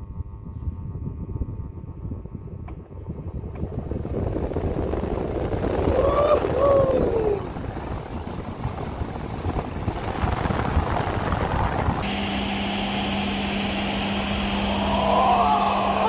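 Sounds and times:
fan air rushing on microphone: 0:00.0 - 0:16.0
low hum: 0:00.0 - 0:16.0
high hiss: 0:12.0 - 0:16.0.

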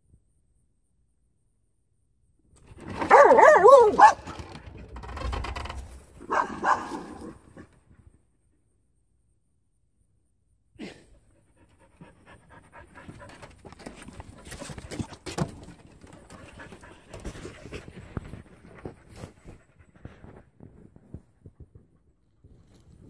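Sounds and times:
dog panting: 0:11.3 - 0:15.1.

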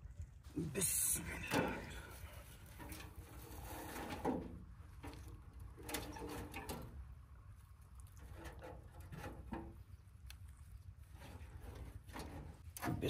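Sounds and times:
scrapes and knocks on metal stove: 0:02.7 - 0:05.2, 0:08.3 - 0:09.8, 0:11.2 - 0:13.0.

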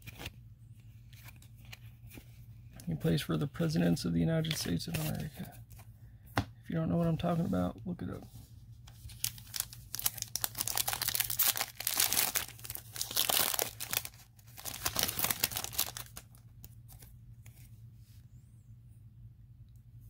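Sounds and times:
foil wrapper tearing and crinkling: 0:09.0 - 0:17.1.

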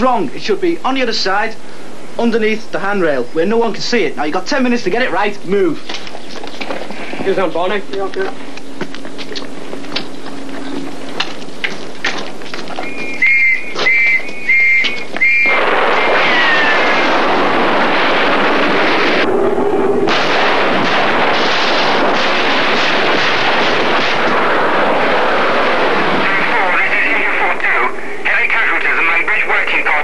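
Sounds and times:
falling whistle: 0:12.8 - 0:16.9
shrill whistle blasts: 0:12.8 - 0:16.9
loud hissing rush: 0:15.4 - 0:29.9.

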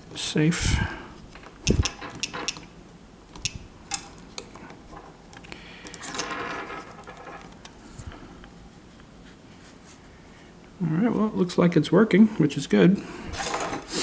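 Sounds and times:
small parts clicking and tapping: 0:01.3 - 0:02.7
rustling and scraping: 0:06.0 - 0:10.6.

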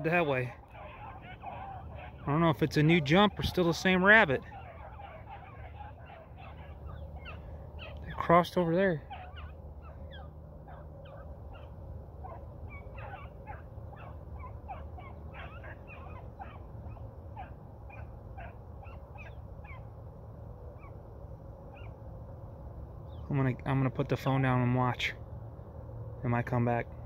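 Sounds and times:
dogs baying in distance: 0:00.0 - 0:20.1, 0:20.7 - 0:22.2.

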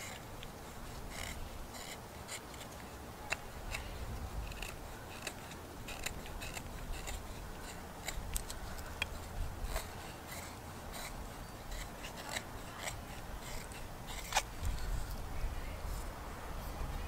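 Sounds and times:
knife scraping wood: 0:00.0 - 0:15.2.

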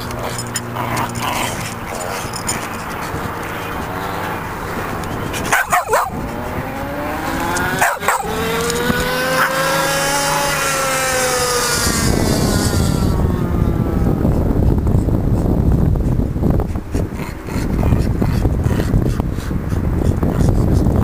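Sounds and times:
engine passing: 0:00.0 - 0:21.0
dog barking: 0:05.5 - 0:06.2, 0:07.8 - 0:08.4.

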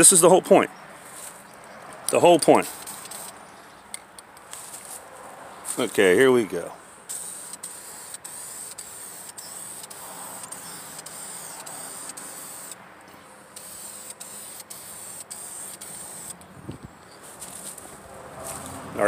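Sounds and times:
aerosol spray can hissing: 0:02.6 - 0:03.4, 0:07.1 - 0:12.8, 0:13.6 - 0:16.4.

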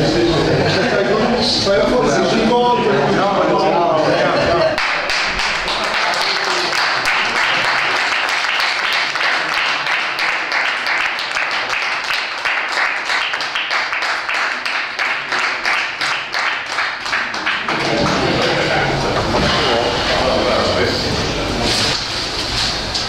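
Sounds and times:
people applauding: 0:04.6 - 0:19.3.

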